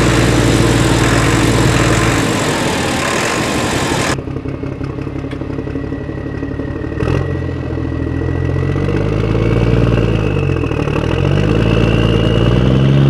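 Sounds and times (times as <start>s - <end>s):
faint high whine: 0.0s - 4.2s
truck engine revving: 0.0s - 4.2s, 6.6s - 13.0s.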